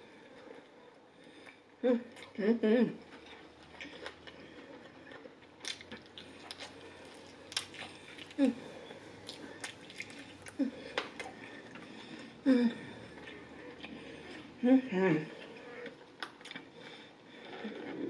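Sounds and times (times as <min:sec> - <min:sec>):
crunchy chewing: 0:03.0 - 0:14.6.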